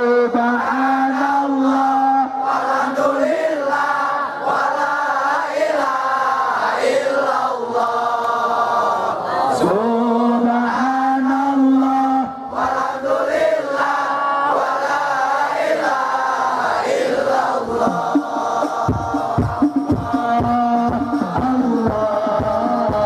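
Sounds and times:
men chanting a devotional song: 0.0 - 23.0
steady drum beats: 17.6 - 23.0.

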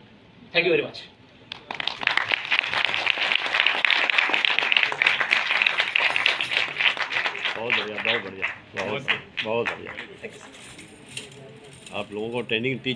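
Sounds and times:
audience applause: 1.5 - 10.6.

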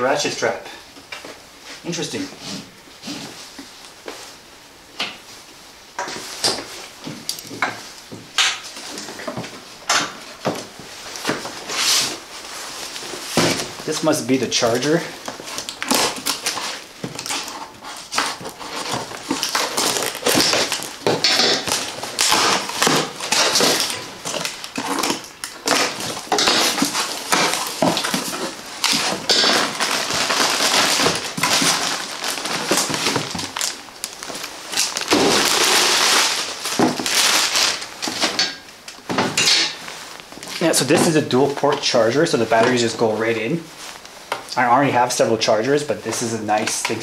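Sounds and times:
plastic wrapping crinkling: 6.2 - 47.0
cardboard flaps scraping: 8.2 - 38.4
scissors cutting packing tape: 15.3 - 33.8.

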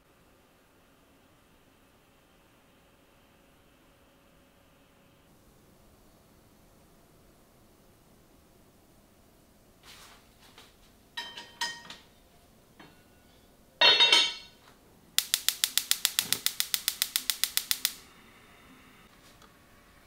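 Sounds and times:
ceramic or glass clinks: 13.8 - 14.6
rapid sharp clicks: 15.2 - 18.1.

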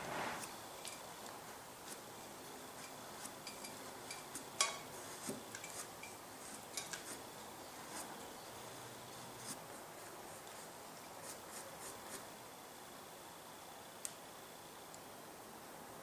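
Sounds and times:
knife cutting clay: 0.4 - 7.2.

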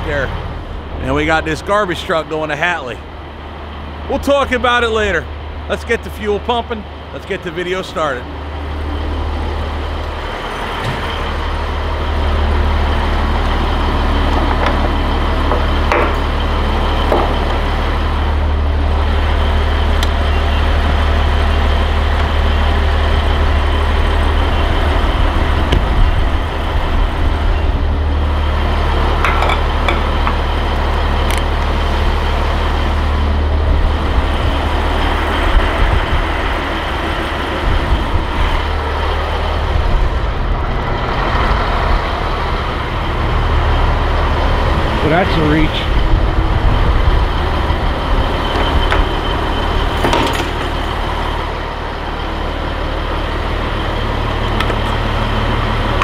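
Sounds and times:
diesel truck engine idling: 0.0 - 56.0
sharp clicks and knocks: 14.4 - 16.3, 17.1 - 17.6.

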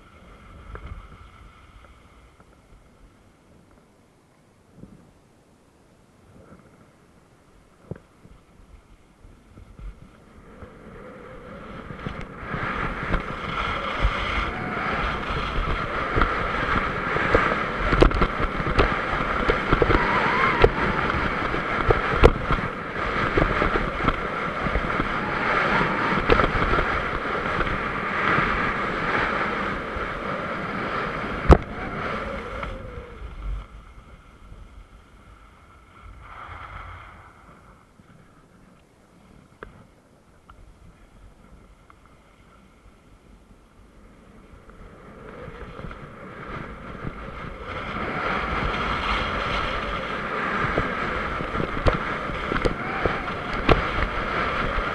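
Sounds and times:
wind on camera microphone: 0.0 - 4.0, 4.6 - 5.3, 6.2 - 54.9
skis scraping over hard snow: 11.6 - 38.4, 45.2 - 54.9.

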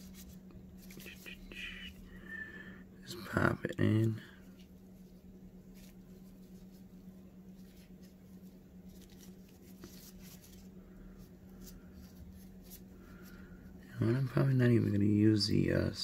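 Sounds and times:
rustling and scraping of small items: 0.0 - 1.8, 3.8 - 14.4
steady low hum: 0.0 - 16.0.

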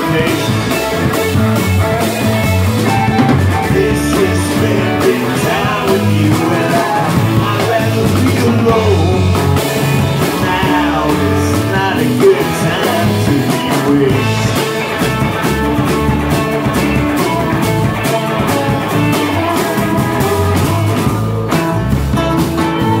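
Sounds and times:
acoustic and electric guitars: 0.0 - 23.0
drum kit beat: 0.0 - 23.0.

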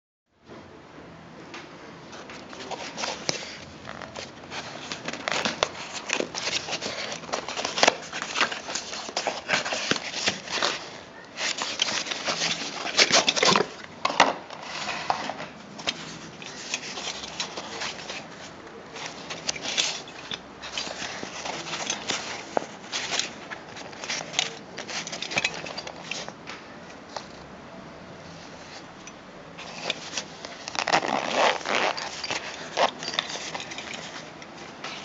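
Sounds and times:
nylon pouch being handled: 2.1 - 13.9, 14.6 - 27.4, 28.3 - 35.0
cardboard box rustling and scraping: 2.2 - 13.8, 14.5 - 26.4, 29.6 - 35.0.

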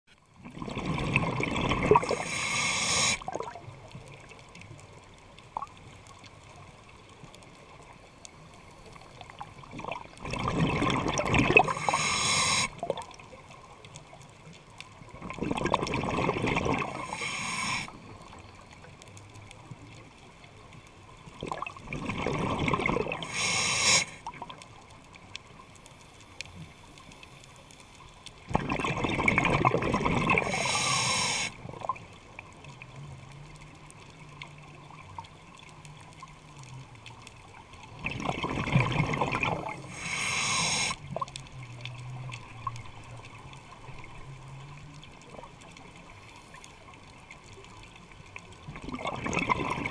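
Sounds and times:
rush of bubbles: 0.4 - 4.2, 9.2 - 13.5, 15.1 - 18.2, 21.4 - 24.6, 28.5 - 32.0, 37.9 - 41.3, 48.6 - 49.9
diver breathing through regulator: 1.9 - 3.3, 11.5 - 12.8, 16.8 - 18.1, 23.0 - 24.2, 30.3 - 31.6, 39.6 - 41.0.

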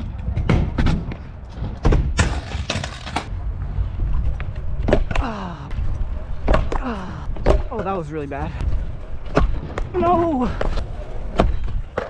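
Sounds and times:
scooter clattering and scraping: 0.0 - 3.3.

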